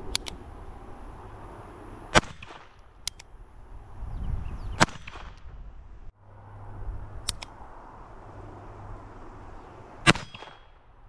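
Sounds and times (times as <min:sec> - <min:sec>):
sharp clicks: 0:00.0 - 0:00.4, 0:02.2 - 0:03.3, 0:07.2 - 0:07.6
gunshot crack: 0:02.1 - 0:02.8, 0:04.8 - 0:05.4, 0:10.0 - 0:10.7.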